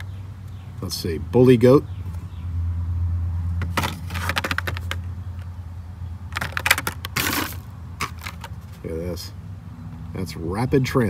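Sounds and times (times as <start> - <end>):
plastic and cardboard crinkling: 3.7 - 5.0, 6.4 - 8.8.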